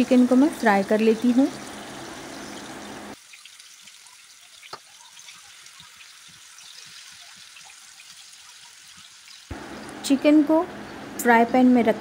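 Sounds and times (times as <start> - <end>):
chicken sizzling in oil: 0.0 - 10.1
oil popping: 1.3 - 9.5.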